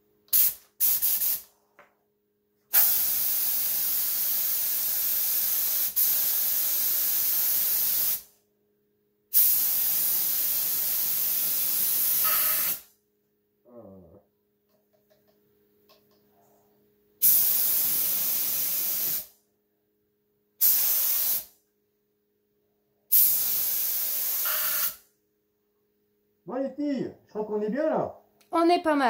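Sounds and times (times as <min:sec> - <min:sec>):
spray gun hissing: 0:00.3 - 0:01.4, 0:02.8 - 0:08.3, 0:09.4 - 0:12.8, 0:17.2 - 0:19.3, 0:20.6 - 0:21.5, 0:23.1 - 0:25.0.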